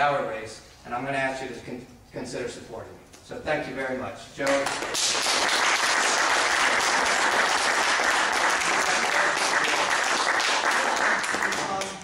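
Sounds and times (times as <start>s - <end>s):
audience applauding: 4.5s - 12.0s.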